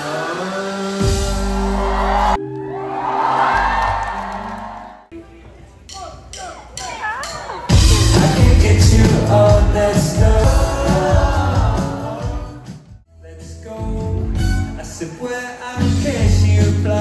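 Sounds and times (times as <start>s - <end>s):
person singing: 0.0s - 3.6s, 7.7s - 17.0s
live band playing: 0.2s - 17.0s.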